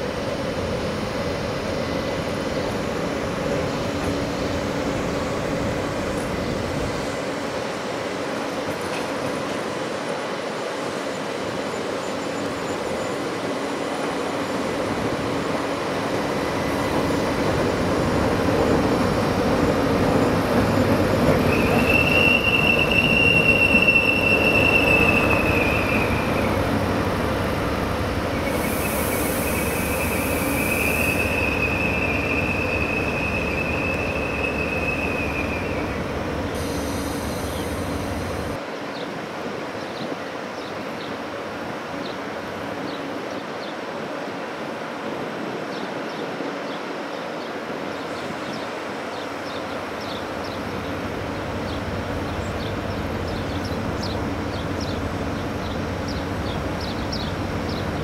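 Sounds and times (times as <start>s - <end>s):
train rumbling past: 0.0s - 39.8s, 40.4s - 58.0s
wheels squealing on rails: 8.4s - 38.6s.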